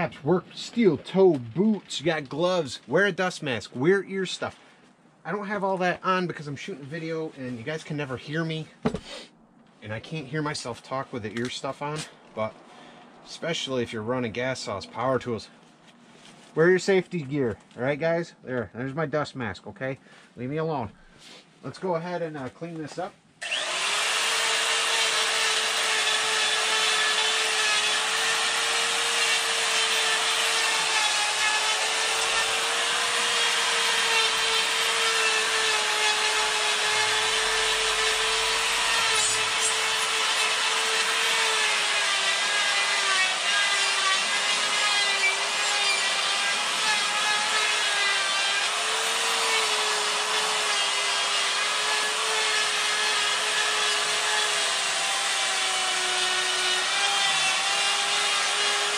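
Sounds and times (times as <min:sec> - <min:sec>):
die grinder grinding wood: 0:23.4 - 0:58.9.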